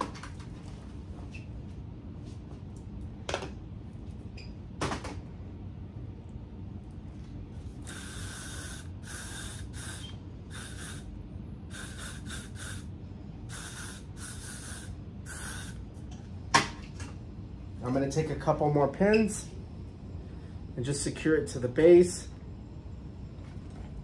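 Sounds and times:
aerosol spray hissing: 7.8 - 11.1, 11.7 - 12.9, 13.5 - 15.8.

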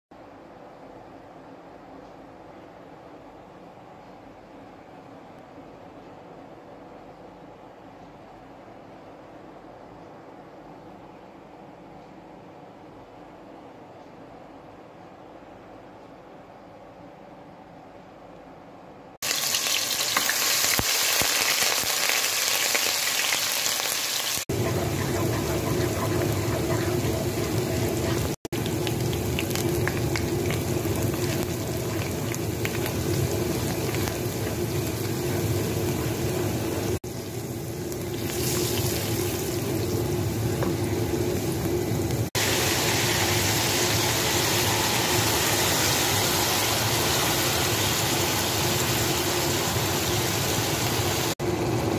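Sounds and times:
hot oil sizzling in a frying pan: 19.2 - 51.4.

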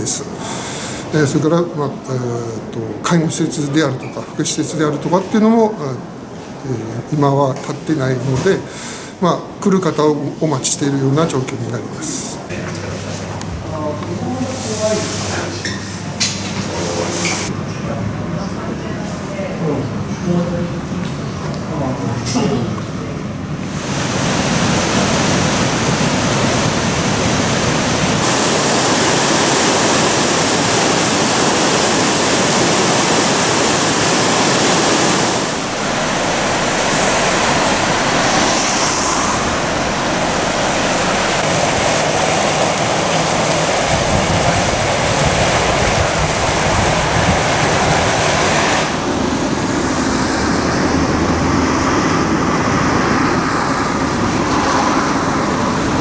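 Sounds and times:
road traffic rumble: 22.8 - 56.0
heavy rain: 23.6 - 56.0
river in flood rushing: 23.6 - 56.0.

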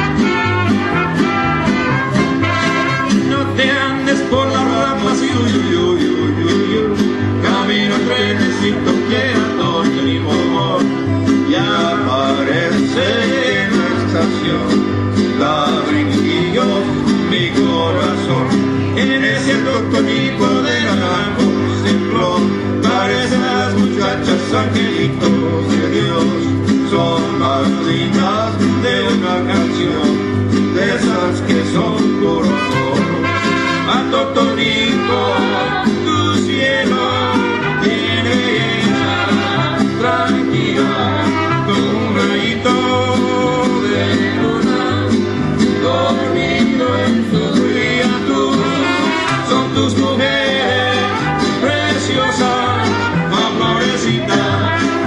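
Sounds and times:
mariachi band playing: 0.0 - 55.0
strummed guitars: 0.0 - 55.0.

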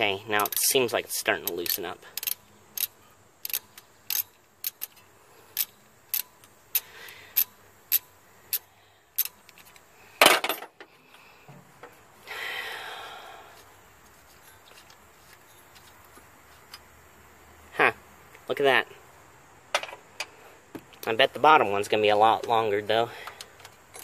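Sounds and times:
socket ratchet clicking: 1.4 - 9.8.

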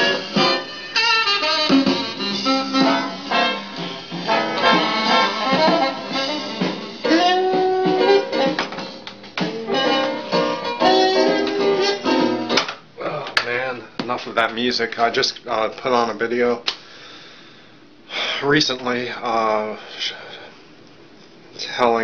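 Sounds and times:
instrumental background music: 0.0 - 12.8.

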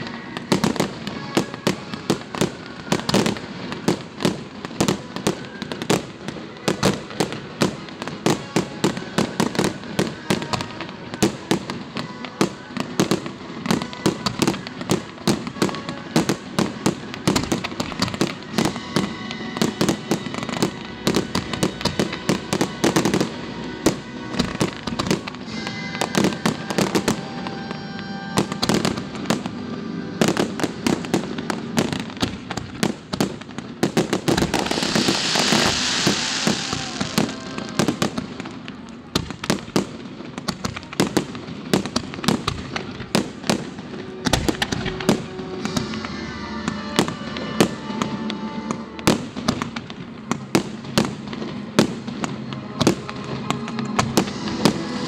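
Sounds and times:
fireworks bangs and crackles: 0.0 - 55.0
high hissing crackle: 9.7 - 33.1, 33.8 - 39.0, 52.9 - 55.0.

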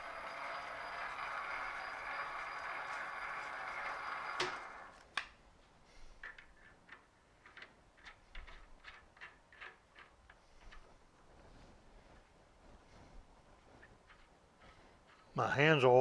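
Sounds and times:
metal lathe running: 0.0 - 5.0.

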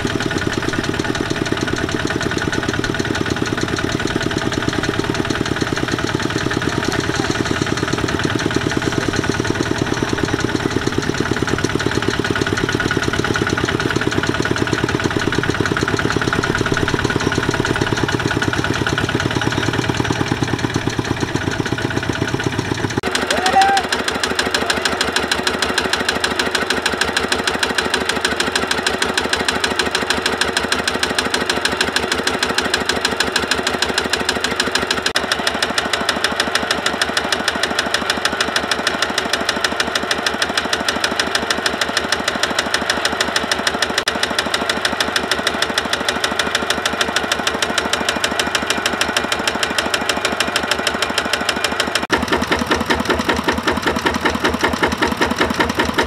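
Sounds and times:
diesel tiller engine chugging: 0.0 - 56.0.

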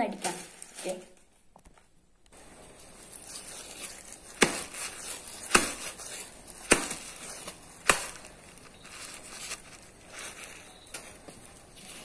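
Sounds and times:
sharp smacks on baskets: 4.4 - 6.0, 6.6 - 8.3.

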